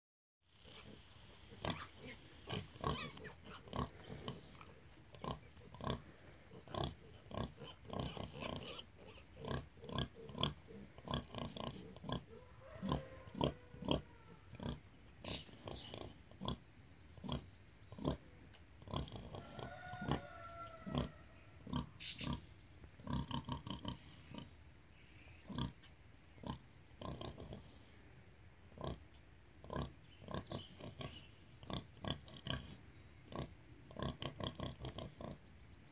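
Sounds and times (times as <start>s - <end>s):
sow grunting: 0.5s - 16.6s
piglets squealing: 1.6s - 3.9s, 6.8s - 11.2s, 12.1s - 15.4s.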